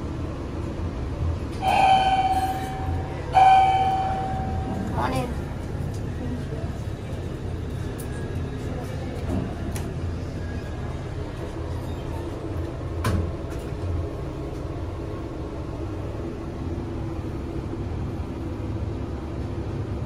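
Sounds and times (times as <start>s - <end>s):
steady low hum: 0.0s - 20.0s
elevator doors sliding shut: 1.5s - 5.4s.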